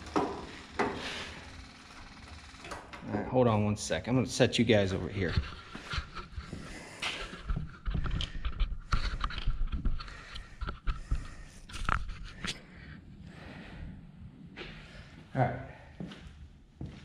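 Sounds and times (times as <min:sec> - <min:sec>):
rubbing and scraping on camera: 0:05.0 - 0:12.6.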